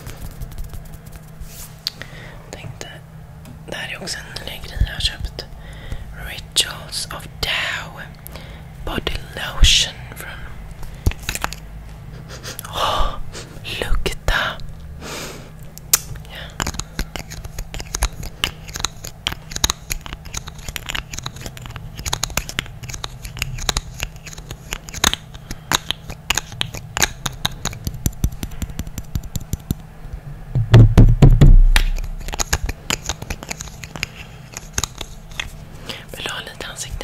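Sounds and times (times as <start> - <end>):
hands tapping and scratching microphone: 0.0 - 1.5, 16.6 - 29.8, 30.6 - 35.6
hands bumping microphone: 30.6 - 32.4.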